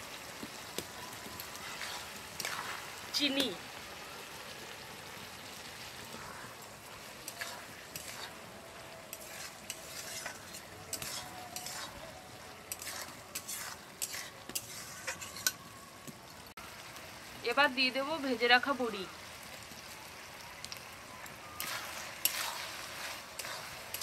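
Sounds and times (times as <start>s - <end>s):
steady sizzle: 0.0s - 24.0s
spatula scraping a pan: 1.4s - 3.1s, 6.1s - 12.1s, 12.7s - 15.6s, 21.6s - 24.0s.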